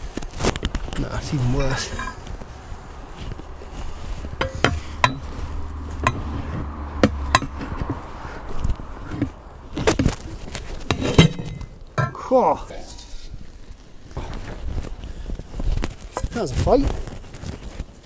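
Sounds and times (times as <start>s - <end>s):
low rumble: 2.0s - 10.7s
steel bar clanking on metal: 4.4s - 5.3s, 6.0s - 6.3s.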